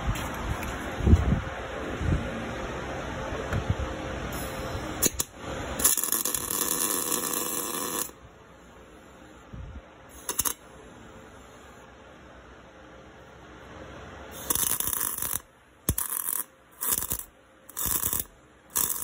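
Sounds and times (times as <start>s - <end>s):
welding arc crackling: 4.4s - 8.2s, 10.1s - 10.8s, 14.3s - 19.0s.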